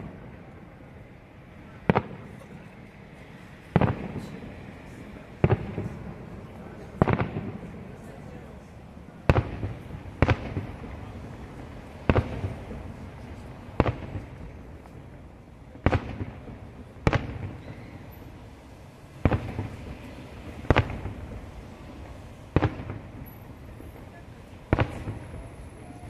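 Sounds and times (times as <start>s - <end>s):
firework shells booming: 1.8s - 2.6s, 3.7s - 4.6s, 5.3s - 8.0s, 9.2s - 18.2s, 19.1s - 24.0s, 24.6s - 26.0s.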